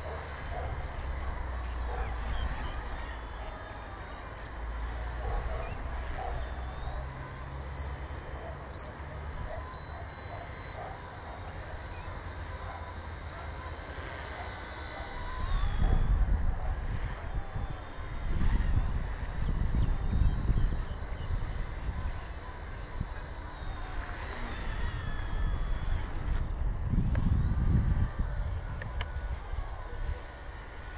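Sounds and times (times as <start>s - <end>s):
long electronic beep: 1.6s - 5.0s, 5.7s - 7.0s, 7.7s - 8.0s, 8.7s - 13.4s
short electronic beeps: 1.7s - 5.0s, 5.6s - 7.0s, 7.7s - 8.0s, 8.7s - 12.2s
wind rumble on microphone: 15.3s - 22.3s, 24.6s - 30.2s.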